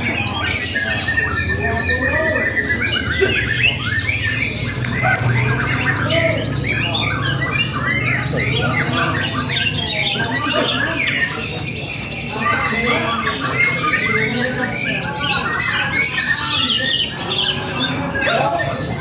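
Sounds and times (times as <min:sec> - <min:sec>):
songbirds singing: 0:00.0 - 0:19.0.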